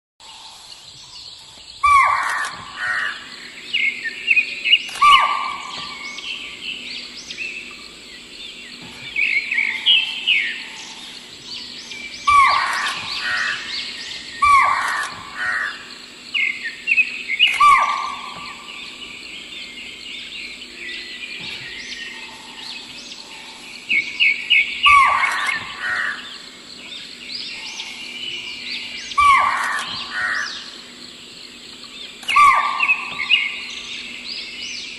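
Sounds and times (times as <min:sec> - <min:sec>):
faint steady hum: 0:00.2 - 0:34.9
high bird chirping: 0:01.8 - 0:34.9
bird calls falling in pitch: 0:04.8 - 0:06.5, 0:12.2 - 0:15.9, 0:32.2 - 0:33.7.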